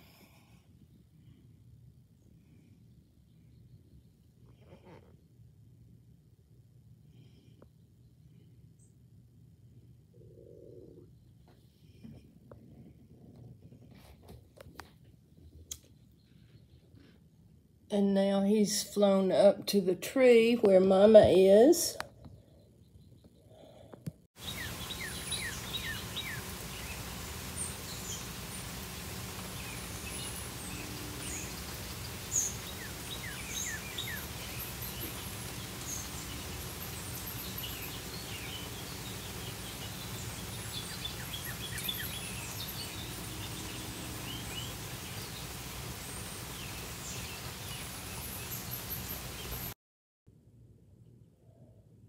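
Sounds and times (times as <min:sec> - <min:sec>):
low outdoor background noise: 0:00.0 - 0:52.0
birds chirping and calling: 0:24.4 - 0:49.7.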